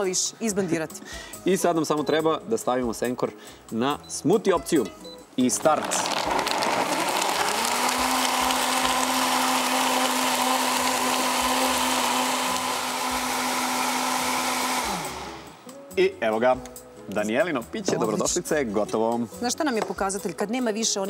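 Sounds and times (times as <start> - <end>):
blender running: 5.6 - 15.6.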